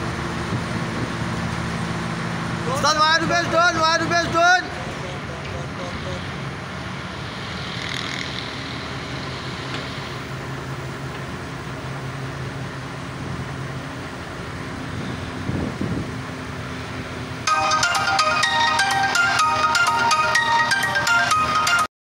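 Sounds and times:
diesel engine droning: 0:00.0 - 0:21.9.

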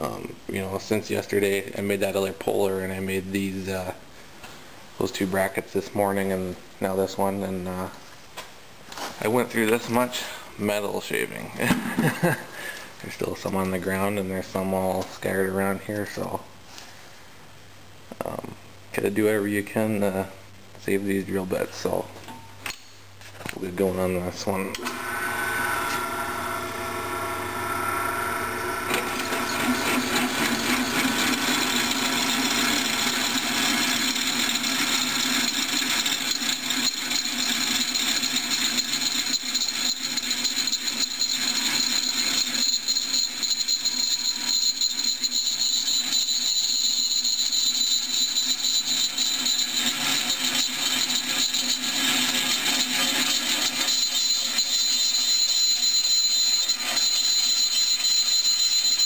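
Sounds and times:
drill press cutting steel: 0:24.8 - 0:59.0.

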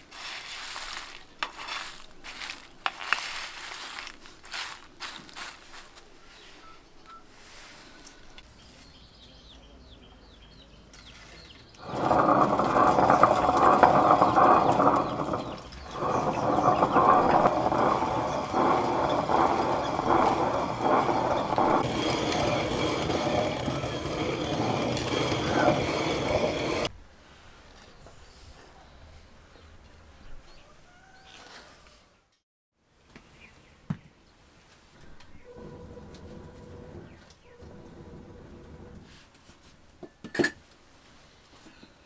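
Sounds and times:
stone quern grinding: 0:00.0 - 0:05.7, 0:11.1 - 0:26.9.

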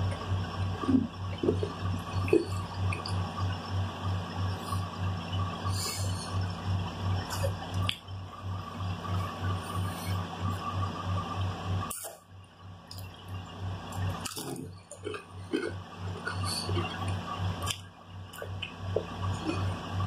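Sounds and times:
pulsing low hum: 0:00.0 - 0:20.0
chewing and crunching chips: 0:12.9 - 0:20.0.

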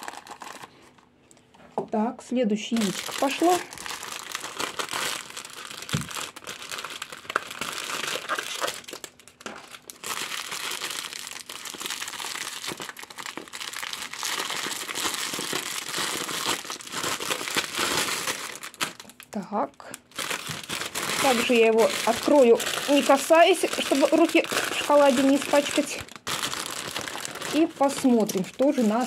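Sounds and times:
foil wrapper crinkling: 0:00.0 - 0:01.2, 0:02.7 - 0:29.0.

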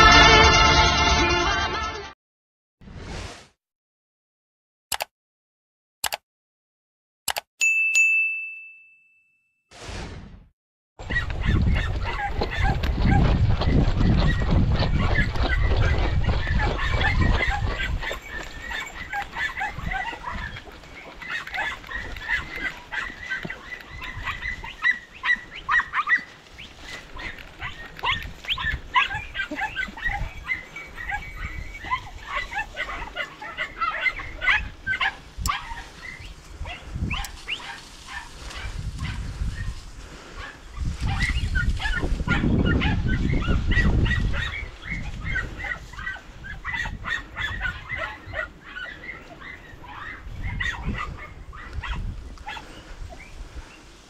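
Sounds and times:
hounds yelping and barking: 0:11.0 - 0:53.8.

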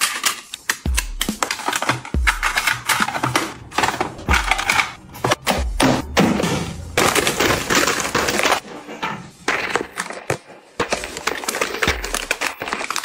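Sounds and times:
snack packets crinkling into plastic bins: 0:01.4 - 0:05.4, 0:06.8 - 0:08.7, 0:09.4 - 0:13.0.

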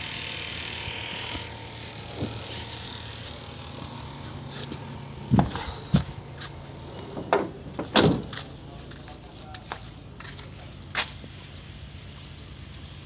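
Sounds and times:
steady low hum: 0:00.0 - 0:13.0
thumps of climbing out of truck: 0:05.3 - 0:06.1, 0:07.1 - 0:08.5.

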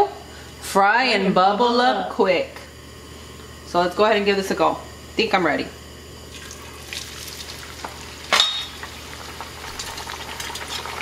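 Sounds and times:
tortilla frying in hot oil: 0:06.3 - 0:11.0.

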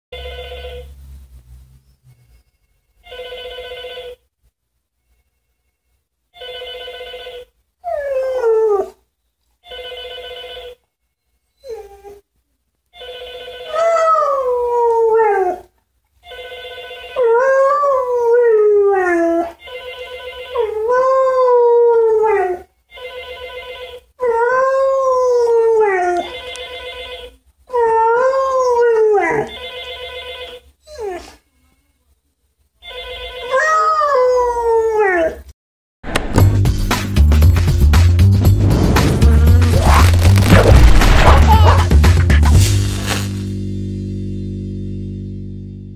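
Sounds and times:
telephone ringing: 0:00.2 - 0:00.8, 0:03.0 - 0:04.2, 0:06.4 - 0:07.5, 0:09.7 - 0:10.8, 0:13.0 - 0:13.8, 0:16.3 - 0:17.2, 0:19.6 - 0:20.6, 0:22.9 - 0:24.1, 0:26.3 - 0:27.4, 0:29.5 - 0:30.6.

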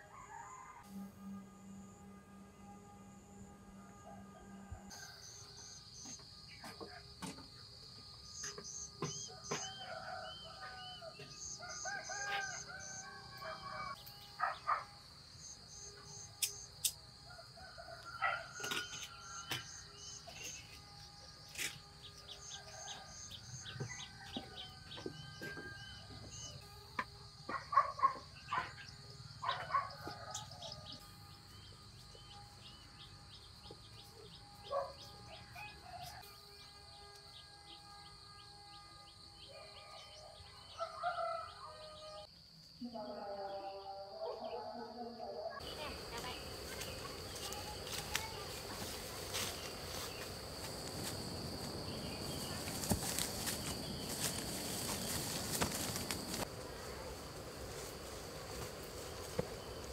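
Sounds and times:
rooster crowing: 0:00.0 - 0:01.0, 0:03.9 - 0:05.5, 0:09.2 - 0:14.0, 0:17.2 - 0:19.8, 0:22.3 - 0:26.3, 0:34.7 - 0:36.3, 0:39.3 - 0:42.3
high insect drone: 0:00.1 - 0:44.0, 0:45.6 - 0:59.9
pulsing insect chirps: 0:11.0 - 0:17.1, 0:45.6 - 0:59.9
chickens calling: 0:45.6 - 0:57.2.

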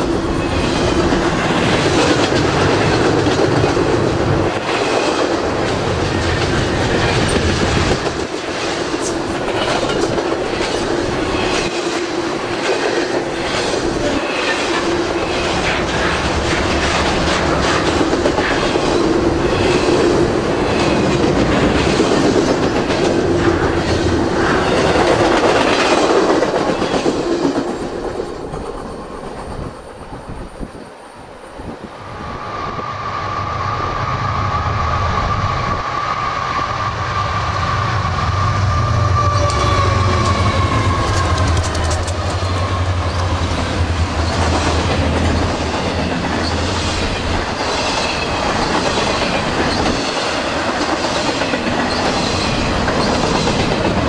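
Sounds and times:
train wheels clattering over rail joints: 0:00.0 - 0:29.8, 0:39.4 - 0:54.0
high wheel squeal: 0:32.1 - 0:43.4.

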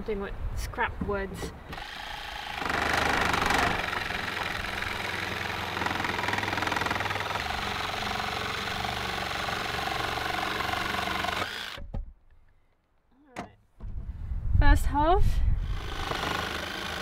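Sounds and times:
jigsaw cutting wood: 0:01.7 - 0:11.8, 0:15.6 - 0:17.0.

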